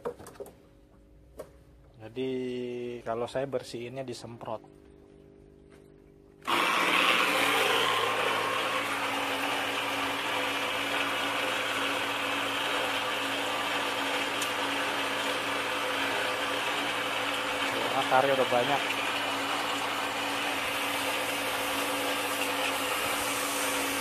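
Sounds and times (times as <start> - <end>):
electric water sprayer motor hum: 6.3 - 24.0
water jet spraying: 20.5 - 24.0.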